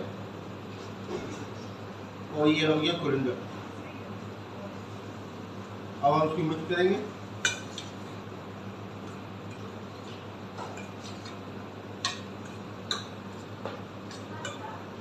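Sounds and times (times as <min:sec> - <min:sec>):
metal spoon clinking on steel bowl: 0:14.1 - 0:14.7.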